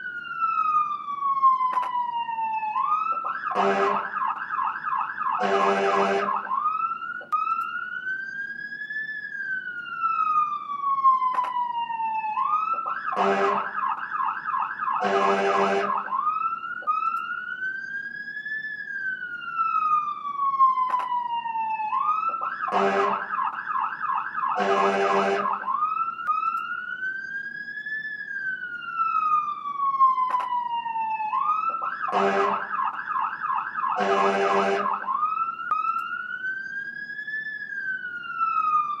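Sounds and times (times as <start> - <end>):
siren wailing and yelping: 0.0 - 39.0
short horn blasts: 3.6 - 4.1, 5.4 - 6.4, 13.2 - 13.7, 15.0 - 16.0, 22.7 - 23.2, 24.6 - 25.5, 32.1 - 32.6, 34.0 - 34.9.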